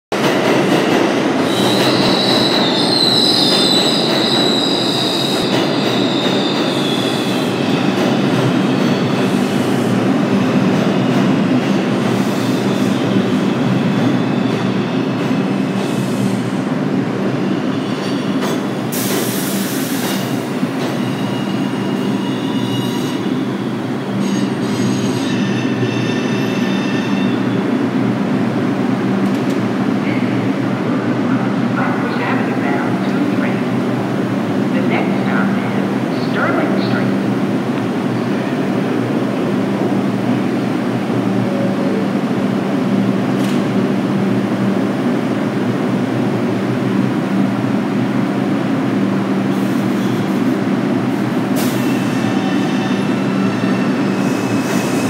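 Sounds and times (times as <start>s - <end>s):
subway train rumbling: 0.0s - 55.0s
high wheel squeal: 1.5s - 7.4s.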